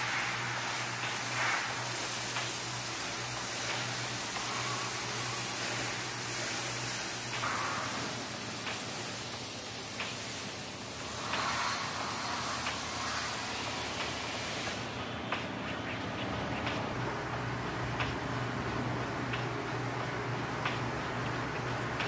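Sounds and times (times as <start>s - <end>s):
pressure washer spray hissing: 0.0s - 15.0s.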